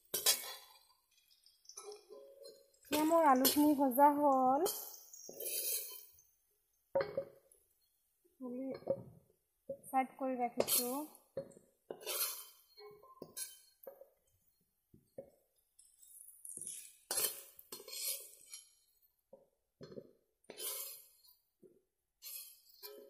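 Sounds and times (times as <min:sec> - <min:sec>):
metal spatula scraping pan: 0:00.0 - 0:03.8, 0:04.7 - 0:06.2, 0:10.6 - 0:11.2, 0:11.9 - 0:13.8, 0:16.4 - 0:19.0, 0:20.5 - 0:21.3, 0:22.2 - 0:23.0.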